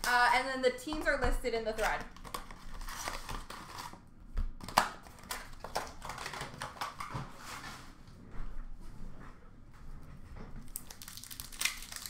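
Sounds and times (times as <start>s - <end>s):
wrappers crinkling and tearing: 1.8s - 4.0s, 10.6s - 12.0s.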